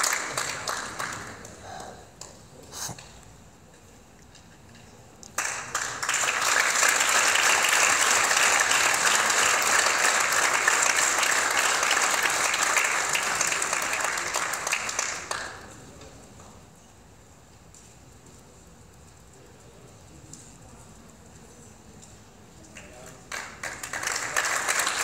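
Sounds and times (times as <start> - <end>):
audience applauding: 0.0 - 2.0, 5.4 - 15.7, 22.8 - 25.0.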